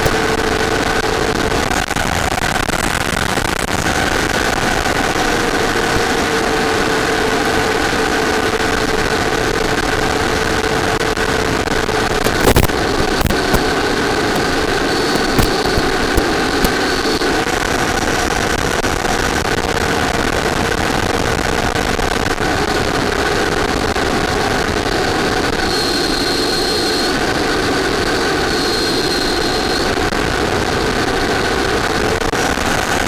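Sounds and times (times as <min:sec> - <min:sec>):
faint high whine: 0:04.0 - 0:18.5, 0:22.2 - 0:33.0
model jet engine rushing: 0:22.4 - 0:32.5.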